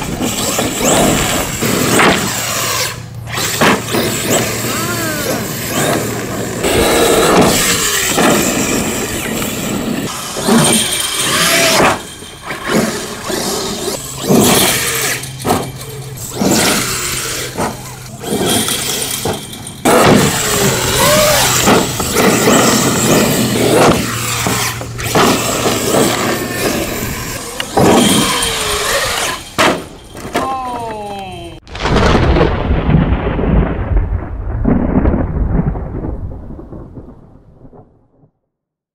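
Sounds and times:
rc truck motor whining: 0.0 - 30.3
tyres crunching gravel: 0.0 - 33.0
sharp knocks: 21.6 - 22.8
deep thunder-like rumble: 31.7 - 38.4.

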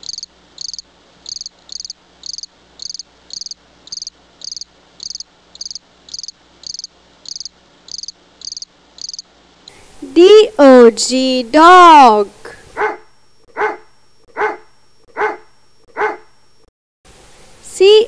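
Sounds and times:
crickets chirping: 0.0 - 9.4.

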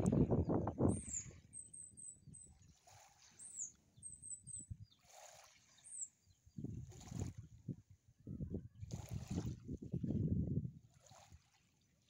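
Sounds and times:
wind noise on microphone: 0.0 - 3.2, 4.0 - 5.4, 6.4 - 11.4
small birds chirping: 0.9 - 5.1, 5.7 - 6.6.

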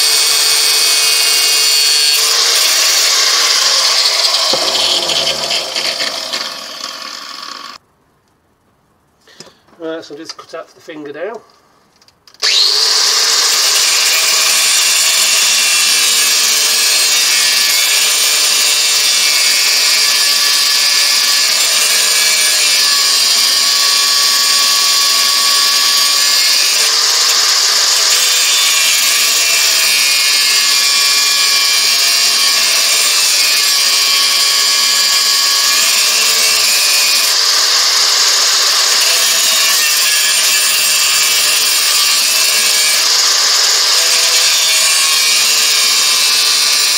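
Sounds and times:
angle grinder cutting steel: 0.0 - 7.8, 12.4 - 46.9.

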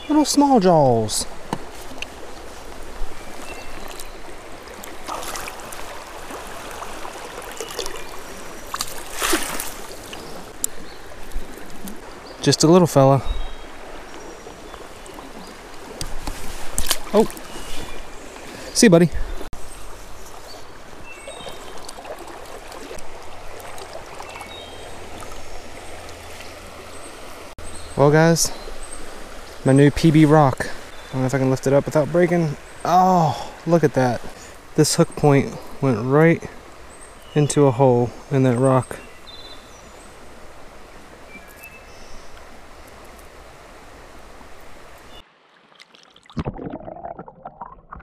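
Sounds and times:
running creek water: 0.0 - 48.0
fish splashing in landing net: 5.0 - 8.0, 8.7 - 10.0.

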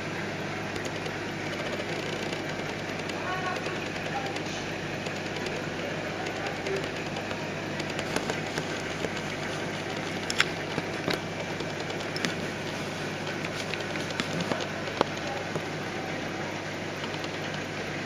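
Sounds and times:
pump hum: 0.0 - 18.0
sharp ticks: 0.7 - 12.4, 16.9 - 17.7.

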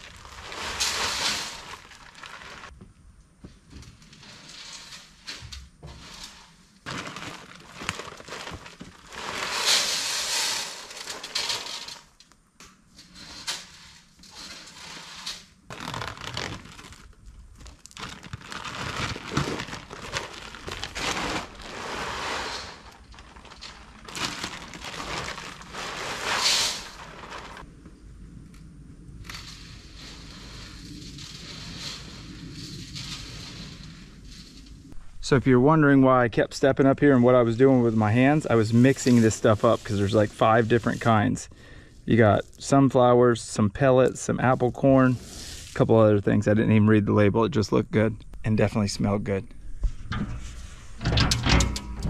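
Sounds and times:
feed bags crinkling: 0.0 - 2.7, 4.0 - 12.2, 13.1 - 27.7.

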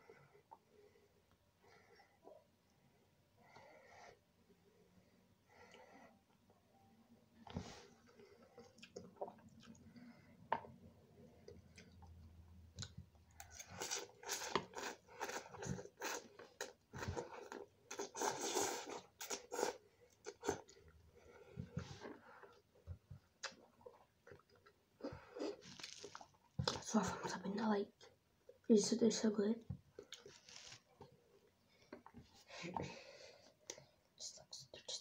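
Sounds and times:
chewing and slurping noodles: 8.1 - 10.2, 11.4 - 26.8.

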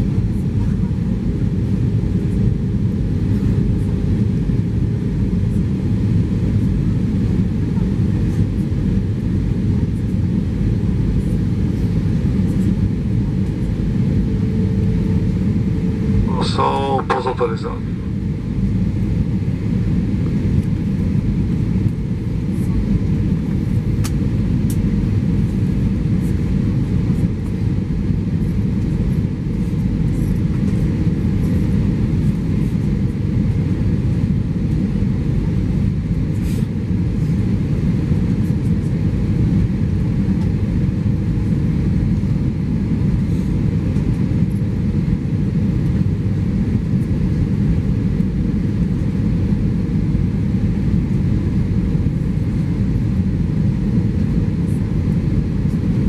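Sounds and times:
airplane cabin rumble: 0.0 - 56.0.

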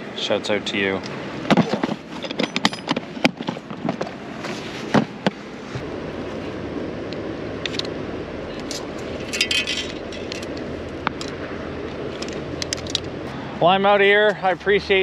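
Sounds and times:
metallic rattle: 1.5 - 4.1, 8.6 - 11.4.

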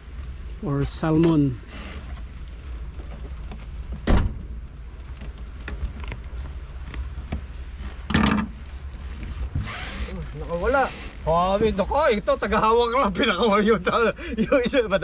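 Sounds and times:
low steady rumble: 0.0 - 15.0
sharp thunk: 4.0 - 4.5.

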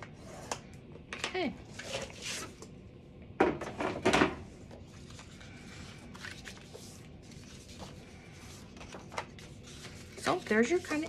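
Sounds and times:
faint paper handling: 4.7 - 11.0
stylus scraping along cardstock: 5.0 - 11.0.

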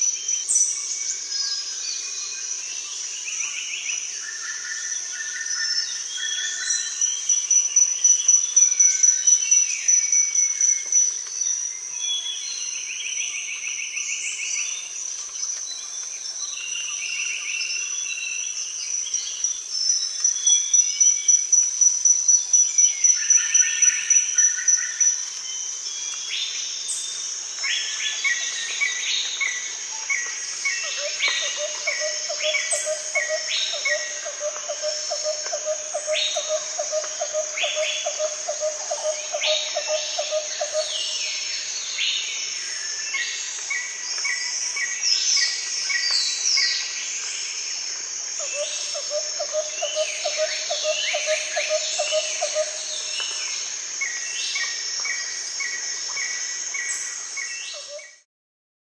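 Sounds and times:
high insect drone: 0.0 - 58.1
bird calls and chirps: 22.7 - 47.2, 48.4 - 58.2.

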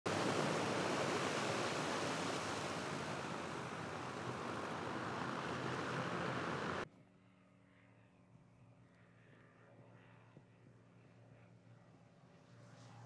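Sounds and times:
aircraft propellers rushing: 0.1 - 6.8.

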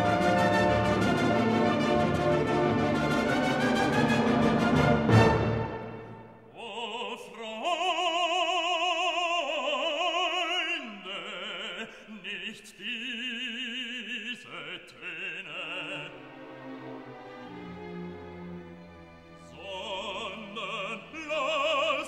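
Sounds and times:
loud orchestral chord: 0.0 - 6.4
operatic voice singing: 6.5 - 16.4, 19.4 - 22.0.

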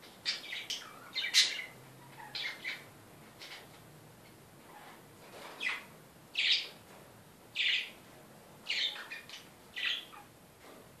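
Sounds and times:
parakeets chirping: 0.2 - 3.7, 5.6 - 6.7, 7.6 - 8.0, 8.7 - 10.3.

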